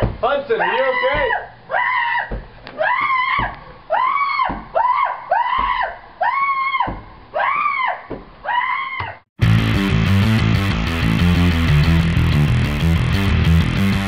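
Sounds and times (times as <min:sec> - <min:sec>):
person screaming: 0:00.6 - 0:09.2
electric guitar music: 0:09.4 - 0:14.0.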